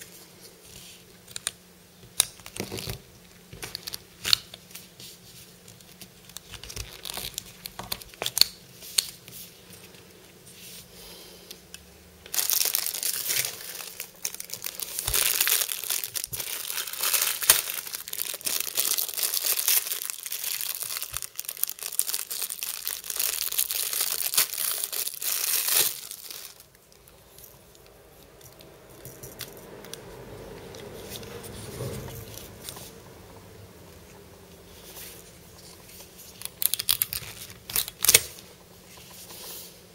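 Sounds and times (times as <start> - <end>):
plastic wrapper crinkling and tearing: 2.4 - 4.8, 5.6 - 9.2, 12.2 - 27.1, 35.6 - 38.4.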